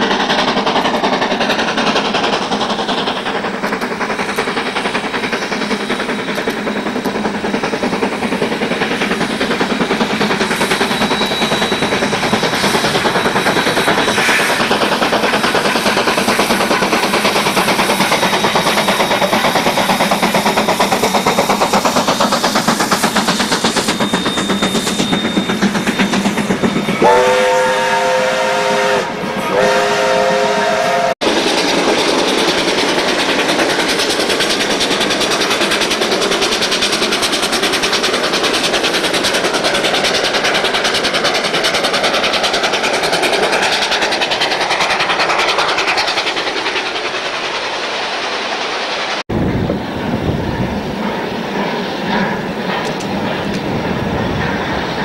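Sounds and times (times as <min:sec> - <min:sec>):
train carriages rolling on rails: 0:00.0 - 0:55.0
steam whistle blasts: 0:26.9 - 0:31.2.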